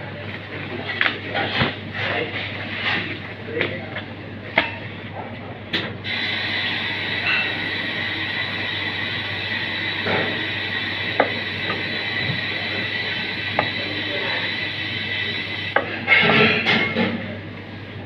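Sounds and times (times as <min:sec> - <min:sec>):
tap water running into steel sink: 0:06.1 - 0:15.8.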